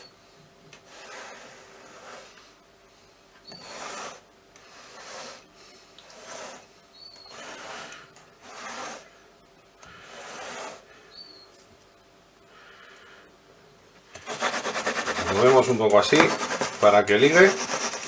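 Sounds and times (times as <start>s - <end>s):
spatula scraping cream in metal pan: 3.4s - 9.2s, 9.9s - 10.9s, 14.2s - 18.0s.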